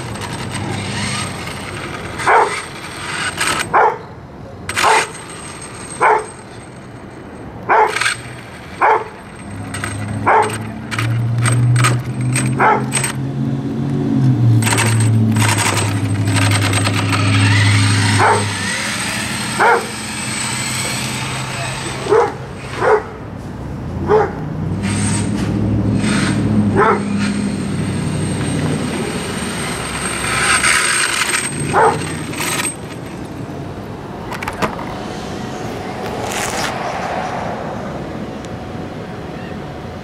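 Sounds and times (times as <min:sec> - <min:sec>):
electric toy truck motor whine: 0:00.0 - 0:03.7, 0:07.9 - 0:13.2, 0:14.5 - 0:22.8, 0:24.8 - 0:33.3
dog barking: 0:02.3 - 0:02.6, 0:03.7 - 0:04.1, 0:06.0 - 0:06.3, 0:07.7 - 0:08.0, 0:08.8 - 0:09.1, 0:10.3 - 0:10.6, 0:12.6 - 0:12.9, 0:18.2 - 0:18.5, 0:19.6 - 0:19.9, 0:22.0 - 0:23.2, 0:24.1 - 0:24.4, 0:26.8 - 0:27.1, 0:31.7 - 0:32.0.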